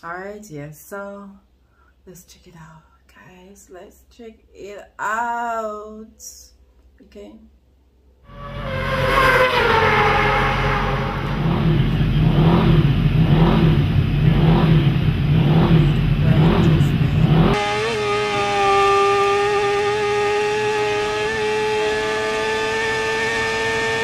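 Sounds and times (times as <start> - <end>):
low pulsing rumble: 8.3 - 17.6
motorcycle engine at high revs: 8.4 - 24.0.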